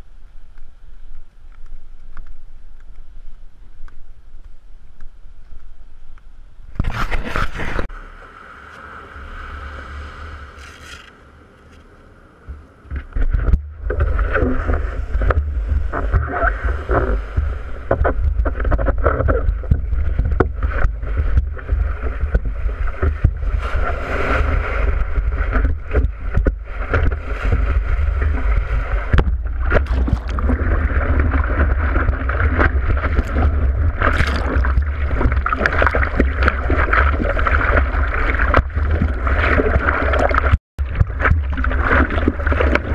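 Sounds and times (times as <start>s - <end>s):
low rumble of water buffeting: 7.8s - 42.9s
water sloshing and splashing: 13.0s - 42.9s.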